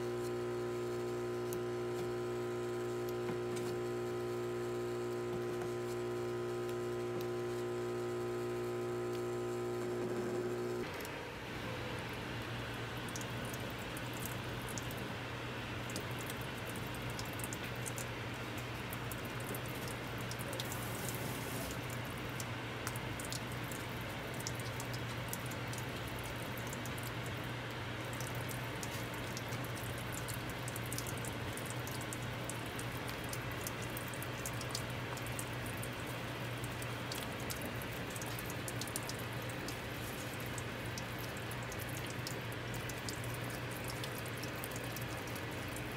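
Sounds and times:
steady low hum: 0.0s - 45.9s.

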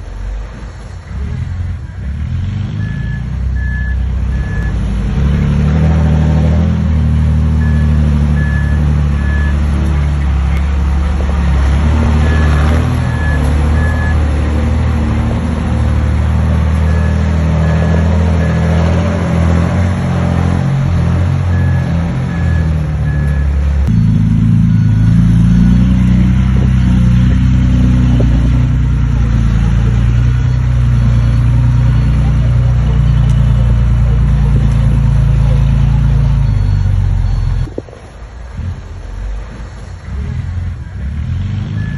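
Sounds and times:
heavy diesel machinery running: 0.0s - 41.9s
reversing alarm beeping: 2.7s - 4.9s, 7.5s - 9.9s, 12.0s - 14.6s, 16.8s - 19.1s, 21.4s - 27.3s, 29.4s - 34.4s, 35.0s - 37.8s.

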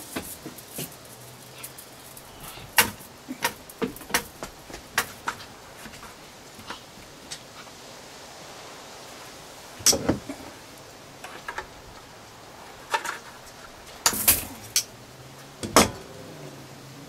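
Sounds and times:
metal wire clicking and snapping: 0.0s - 5.5s, 12.8s - 14.9s.

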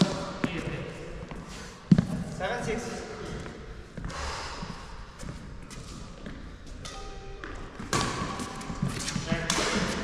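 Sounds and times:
rackets hitting shuttlecock: 6.8s - 10.0s
footsteps on court: 7.4s - 10.0s.

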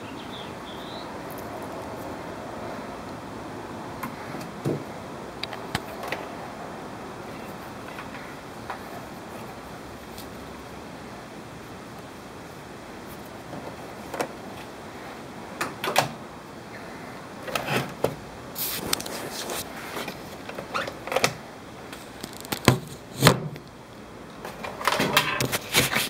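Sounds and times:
handling cords and plastic case: 17.4s - 23.6s, 24.4s - 26.0s.

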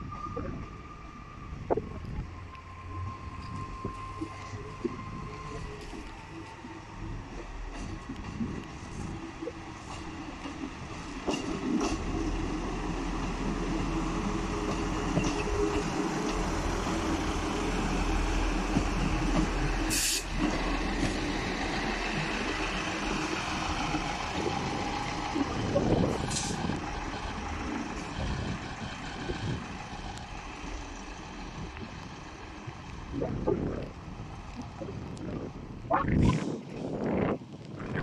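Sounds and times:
train engine running: 2.3s - 35.8s
air hisses: 19.9s - 20.3s.

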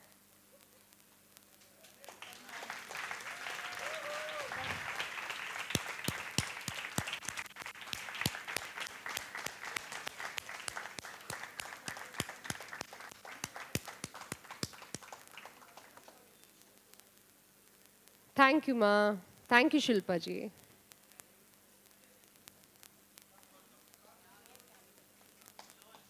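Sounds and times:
audience applauding: 1.7s - 16.3s.

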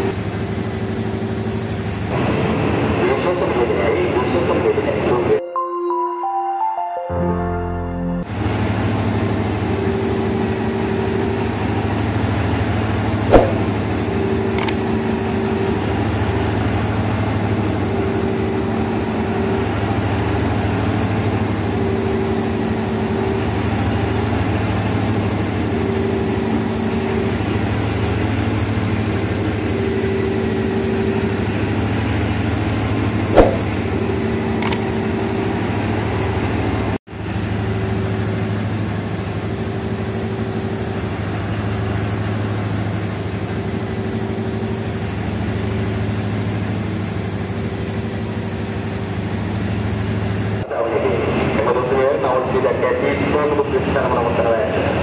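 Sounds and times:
diesel locomotive idling: 0.0s - 5.3s, 8.2s - 55.0s
sharp clicks: 14.6s - 14.8s, 34.6s - 34.8s.

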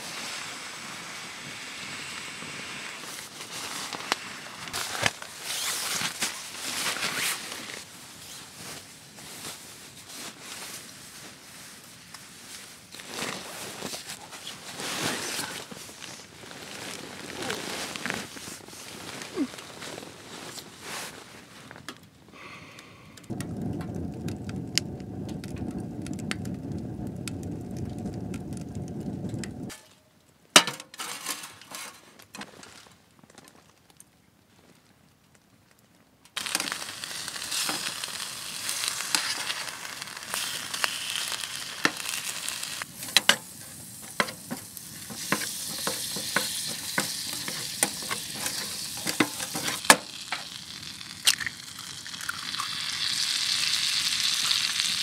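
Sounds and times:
low rumble: 23.3s - 29.7s
food sizzling and popping in pan: 36.4s - 55.0s.

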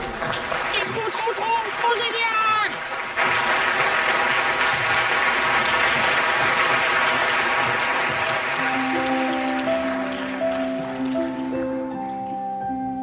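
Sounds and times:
audience applauding: 0.0s - 12.3s
soft music with held notes: 8.4s - 13.0s.

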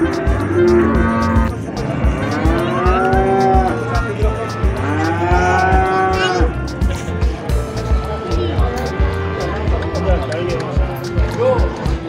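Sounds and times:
cattle mooing: 0.0s - 6.6s
music beat: 0.0s - 12.0s.

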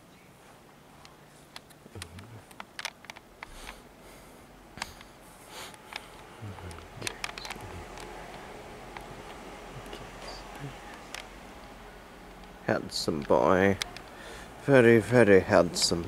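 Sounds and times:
handling clicks: 1.5s - 3.8s, 5.7s - 9.9s, 12.3s - 14.2s
low hum: 3.3s - 16.0s.

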